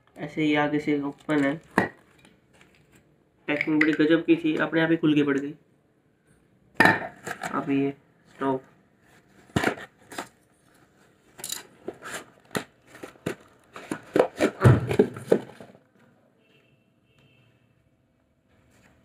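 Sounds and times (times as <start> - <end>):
cardboard boxes scraping and knocking: 11.8 - 15.8.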